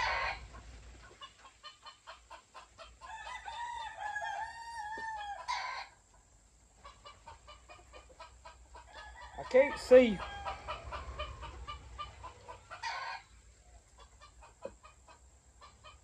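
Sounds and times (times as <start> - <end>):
rooster crowing: 0.0 - 0.4, 3.0 - 5.9, 8.8 - 13.3.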